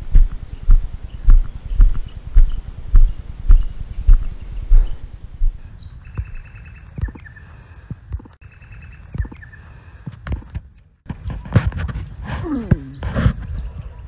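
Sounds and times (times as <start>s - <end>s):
footsteps on dry grass: 0.0s - 8.4s.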